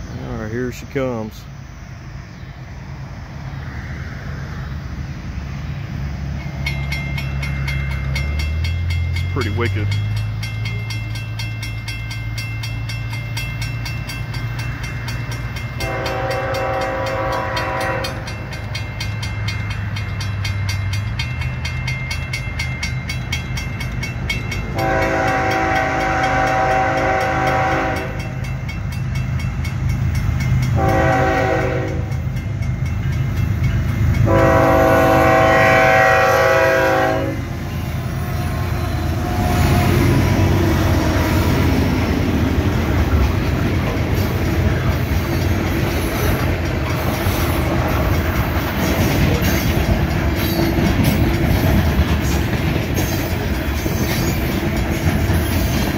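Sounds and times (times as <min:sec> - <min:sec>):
railroad crossing bell ringing: 0:00.0 - 0:01.5, 0:06.2 - 0:55.9
locomotive engine rumble: 0:00.0 - 0:55.9
locomotive horn blasts: 0:15.8 - 0:18.3, 0:24.7 - 0:28.4, 0:30.7 - 0:32.2, 0:34.2 - 0:37.6.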